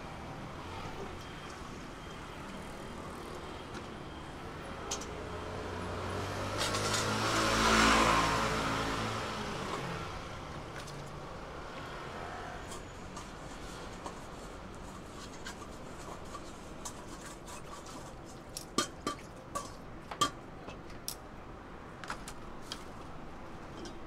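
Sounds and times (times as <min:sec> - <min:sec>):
street traffic: 0:00.0 - 0:24.0
vehicle driving past: 0:05.2 - 0:10.6.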